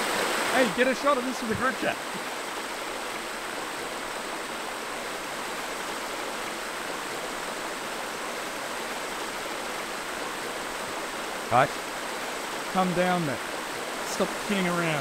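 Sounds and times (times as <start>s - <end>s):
creek water flowing over rocks: 0.0s - 15.0s.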